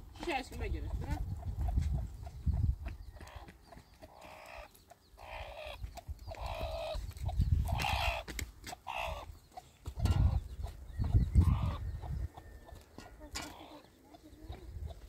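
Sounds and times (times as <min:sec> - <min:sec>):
hen clucking: 0:00.2 - 0:15.0
wind on microphone: 0:00.5 - 0:03.4, 0:05.7 - 0:08.4, 0:09.0 - 0:12.9, 0:14.4 - 0:15.0.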